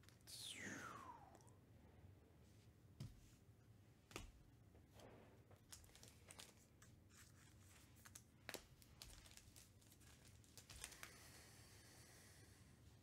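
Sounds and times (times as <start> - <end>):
wrapper crinkling: 5.6 - 11.1.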